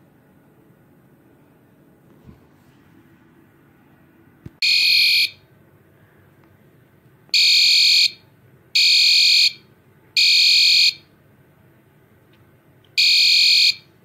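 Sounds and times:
fire alarm horn blasts: 4.6s - 5.4s, 7.4s - 8.2s, 8.8s - 9.6s, 10.2s - 11.1s, 13.0s - 13.9s.

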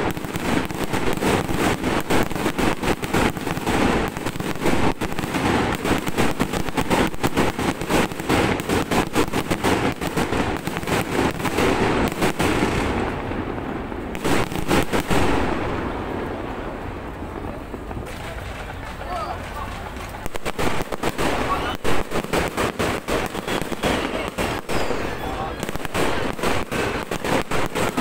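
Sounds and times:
fireworks crackling and popping: 0.0s - 28.0s.

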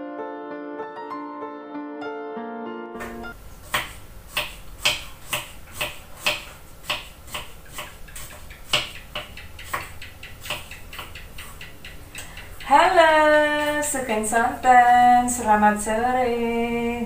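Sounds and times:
knife chopping on wooden board: 3.7s - 11.8s.

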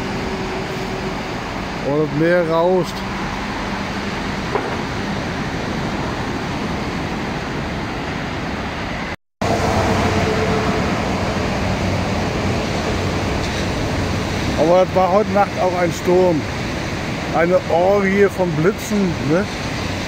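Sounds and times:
road traffic noise: 0.0s - 20.0s
rough surf roaring: 0.0s - 20.0s.

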